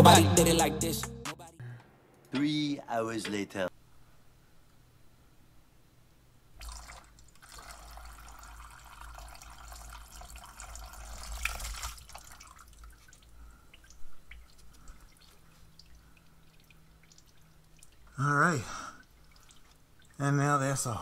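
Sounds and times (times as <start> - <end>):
liquid dripping: 6.6 - 20.7.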